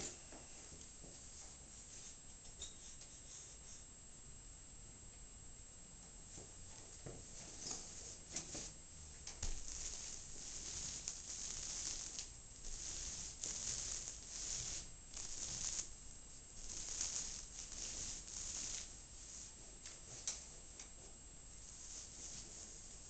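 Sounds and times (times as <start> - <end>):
paint roller crackling hiss: 7.3 - 23.0.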